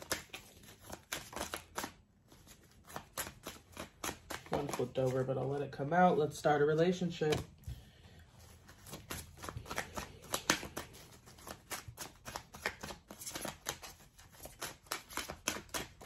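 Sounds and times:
cards being shuffled: 0.0 - 5.7, 6.7 - 16.0.

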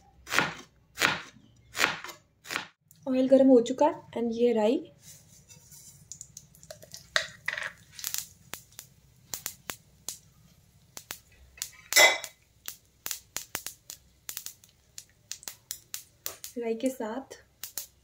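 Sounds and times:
seeds popping in hot oil: 6.0 - 18.0.

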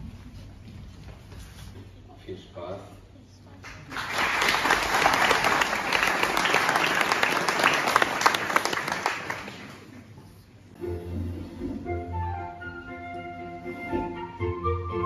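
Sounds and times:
audience applauding: 3.7 - 10.2.

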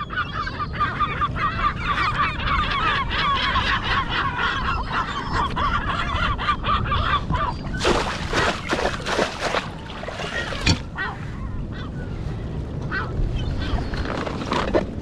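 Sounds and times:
flock of birds calling: 0.0 - 8.7.

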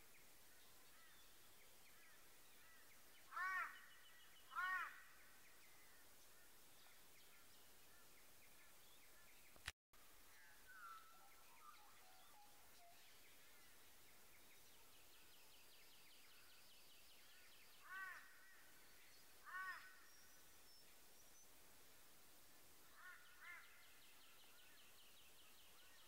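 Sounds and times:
crow-like bird calls: 2.6 - 5.2, 17.8 - 18.7, 19.4 - 20.1, 22.9 - 23.9.

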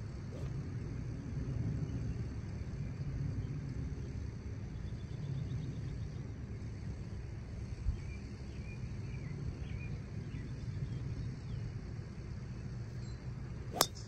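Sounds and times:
sharp crack: 13.8 - 14.0.

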